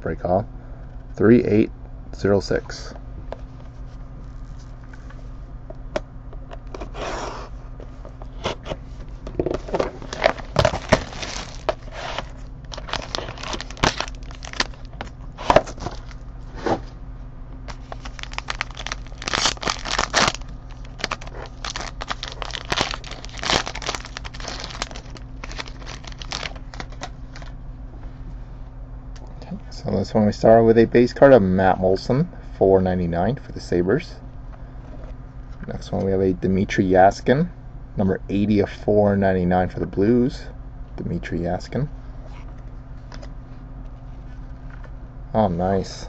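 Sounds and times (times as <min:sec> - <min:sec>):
plastic wrap being torn: 0:09.9 - 0:16.2, 0:17.7 - 0:27.5.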